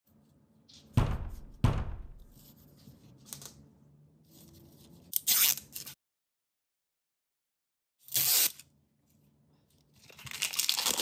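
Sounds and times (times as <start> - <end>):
plastic crinkling: 10.0 - 11.0.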